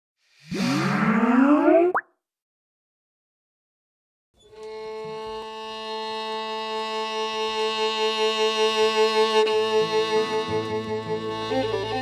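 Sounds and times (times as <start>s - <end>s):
violin long bowed note: 4.5s - 12.0s.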